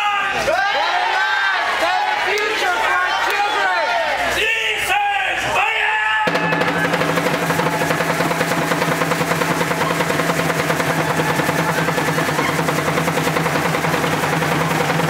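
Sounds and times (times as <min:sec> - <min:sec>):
fast drum roll: 0:06.3 - 0:15.0.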